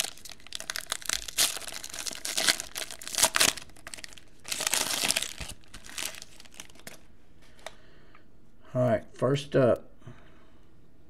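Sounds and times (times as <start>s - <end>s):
foil wrapper crinkling and tearing: 0.0s - 7.1s.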